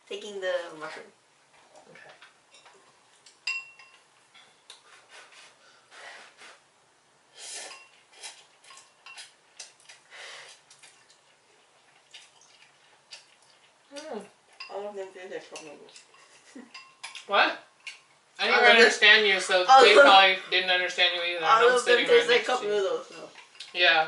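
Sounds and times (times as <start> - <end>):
noodle slurping: 7.4 - 13.8
chopsticks clicking against bowls: 15.5 - 18.0.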